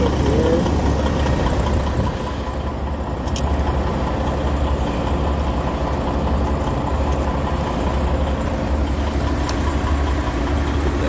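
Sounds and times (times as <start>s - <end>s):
diesel truck engines idling: 0.0s - 11.0s.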